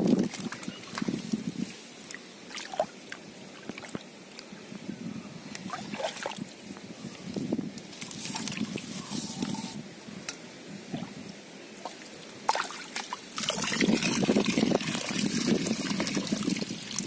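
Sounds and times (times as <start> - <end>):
muddy water splashing: 0.0 - 4.1, 5.6 - 6.5, 11.8 - 17.0.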